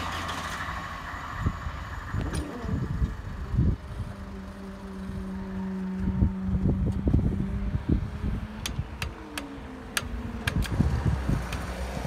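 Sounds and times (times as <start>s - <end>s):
barrier drive unit humming: 0.0s - 12.0s
wind buffeting microphone: 1.2s - 12.0s
sharp clicks: 8.6s - 10.8s.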